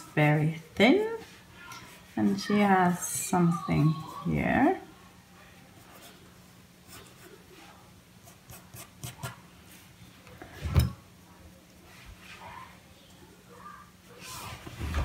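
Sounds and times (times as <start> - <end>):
pencil scratching on paper: 0.2 - 4.2, 6.9 - 7.4, 8.2 - 9.4.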